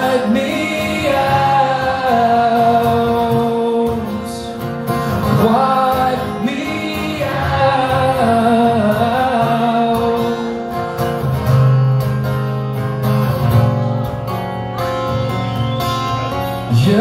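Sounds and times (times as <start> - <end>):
man singing: 0.0 - 10.8, 16.6 - 17.0
acoustic guitar strummed: 0.0 - 17.0.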